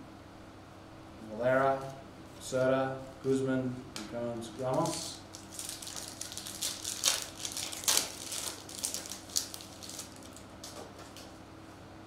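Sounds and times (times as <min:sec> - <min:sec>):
foil wrapper crinkling: 0:04.6 - 0:11.3.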